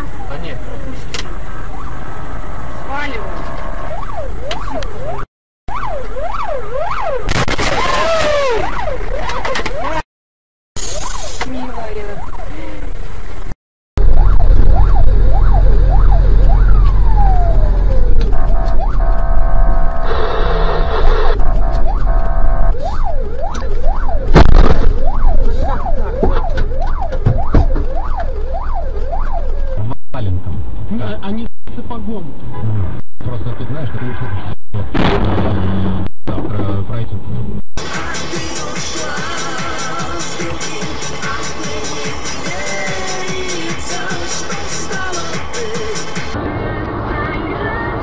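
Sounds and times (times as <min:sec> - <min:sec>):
siren yelping: 0:00.0 - 0:10.0, 0:10.8 - 0:12.8, 0:14.0 - 0:30.0
loud bang: 0:07.3 - 0:08.5, 0:24.3 - 0:25.2, 0:34.8 - 0:36.8
low vehicle rumble: 0:10.9 - 0:40.6.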